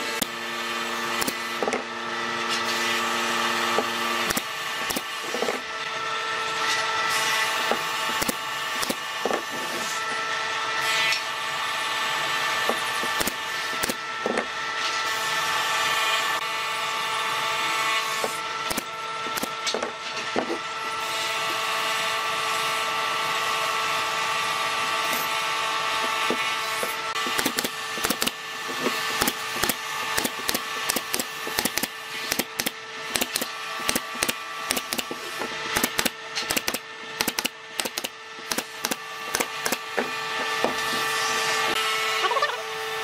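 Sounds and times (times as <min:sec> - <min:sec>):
steady machine hum: 0:00.0 - 0:43.0
nail gun firing: 0:01.0 - 0:01.9, 0:03.7 - 0:05.6, 0:07.2 - 0:09.9, 0:12.6 - 0:14.4, 0:18.1 - 0:19.9, 0:26.0 - 0:41.0.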